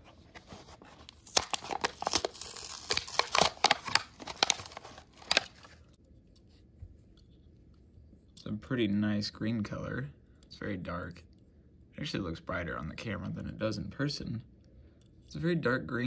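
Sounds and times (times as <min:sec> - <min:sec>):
plastic packaging tearing: 0:00.4 - 0:05.9.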